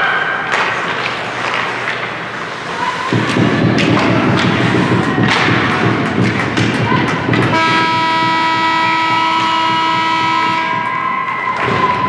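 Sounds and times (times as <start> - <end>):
steady low arena noise: 0.0 - 12.0
sharp knocks and thumps: 3.1 - 10.9.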